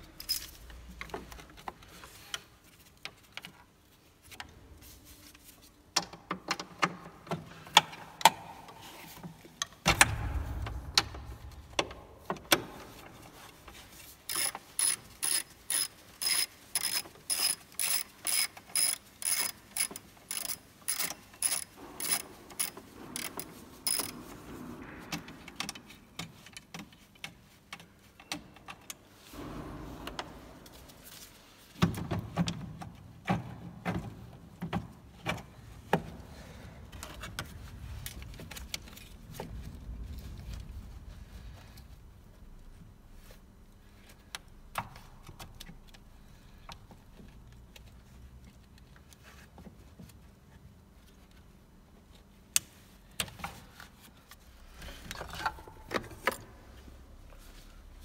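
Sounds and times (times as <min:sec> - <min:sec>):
socket ratchet wrench clicking: 0:14.3 - 0:24.1
tools and metal parts knocking: 0:14.3 - 0:26.8.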